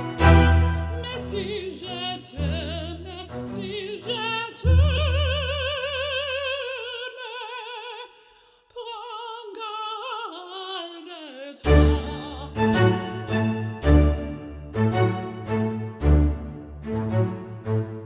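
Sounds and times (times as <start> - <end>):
orchestral accompaniment: 0.0 - 3.9, 11.6 - 18.0
operatic singing: 0.0 - 8.1, 10.8 - 18.0.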